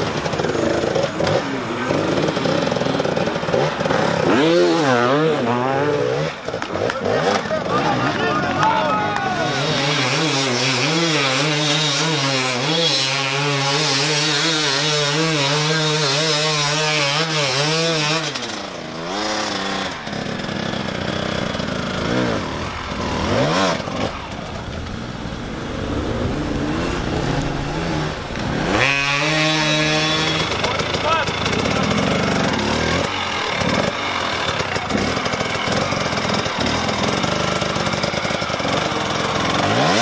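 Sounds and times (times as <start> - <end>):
dirt bike engines revving: 0.0 - 40.0.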